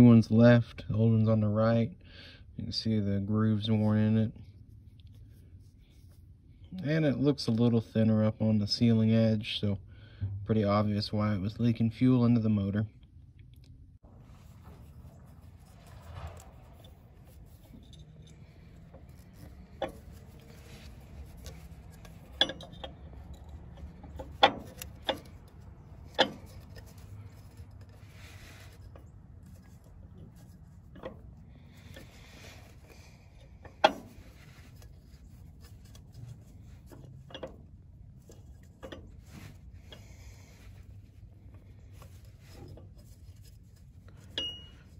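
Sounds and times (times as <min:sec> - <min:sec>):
rubber seal rubbing: 0:14.2 - 0:44.9.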